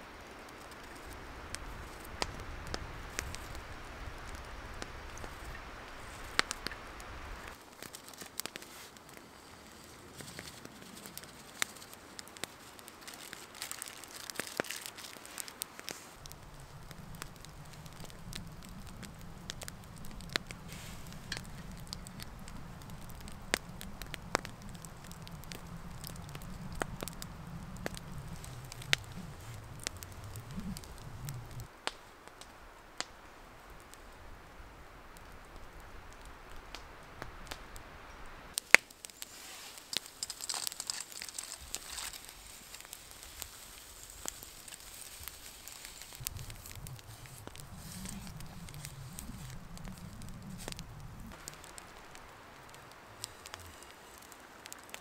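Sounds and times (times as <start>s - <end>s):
campfire crackling and popping: 0.0s - 55.0s
low steady rumble: 16.2s - 31.7s, 46.1s - 53.2s.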